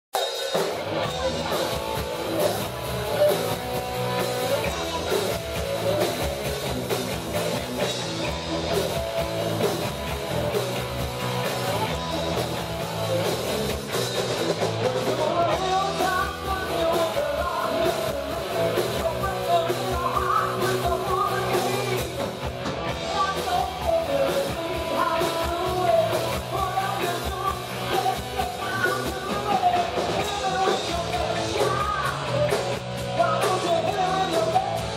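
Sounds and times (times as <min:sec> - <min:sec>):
live rock band playing: 0:00.2 - 0:34.9
woman singing lead vocal: 0:15.0 - 0:22.3, 0:23.0 - 0:34.9.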